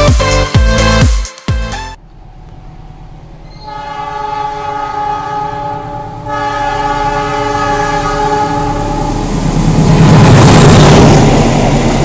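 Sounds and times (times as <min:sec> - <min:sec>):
train rumbling on track: 0:02.0 - 0:12.0
diesel locomotive horn: 0:03.5 - 0:09.2.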